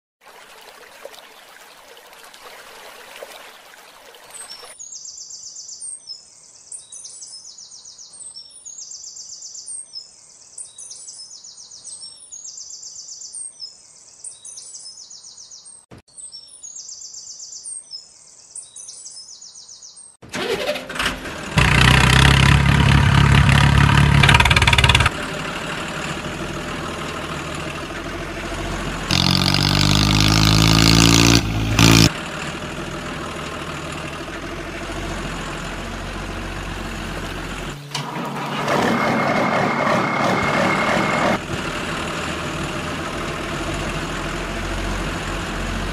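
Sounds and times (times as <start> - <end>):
truck engine revving: 20.3 - 45.9.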